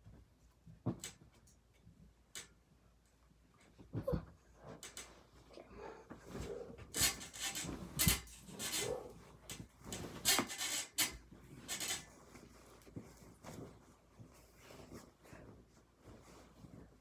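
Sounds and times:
bedding rustling: 3.3s - 17.0s.

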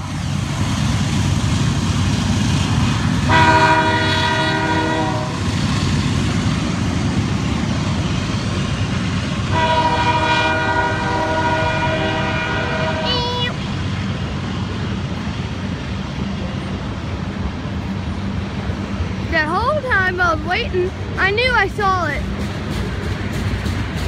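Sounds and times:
freight train cars rumbling: 0.0s - 24.0s
train air horn blasts: 3.2s - 5.4s, 9.5s - 13.3s.

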